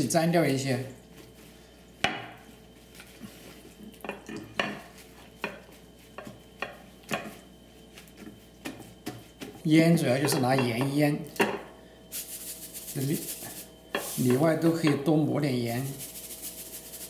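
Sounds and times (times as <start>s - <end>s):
paper towel patting and rustling: 4.9s - 6.5s, 7.3s - 9.8s.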